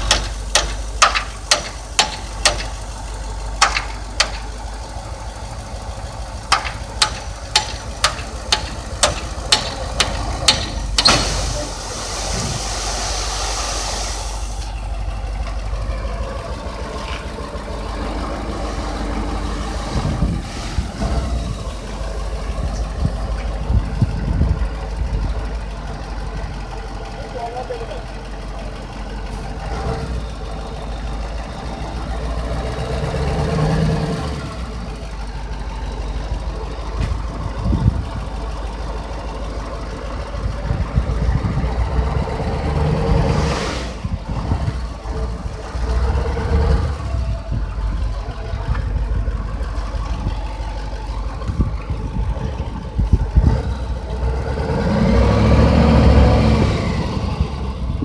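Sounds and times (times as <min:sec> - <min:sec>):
sharp knocks: 0:00.0 - 0:02.8, 0:03.6 - 0:04.5, 0:06.5 - 0:11.3
truck engine rumbling: 0:00.0 - 0:58.0
sand sliding out with hissing rush: 0:11.0 - 0:14.8, 0:43.3 - 0:44.1.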